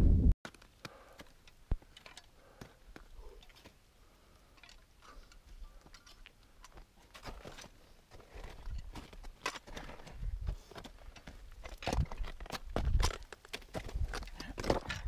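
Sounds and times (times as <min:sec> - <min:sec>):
crampons and ice axe knocking rock: 0:08.9 - 0:15.0.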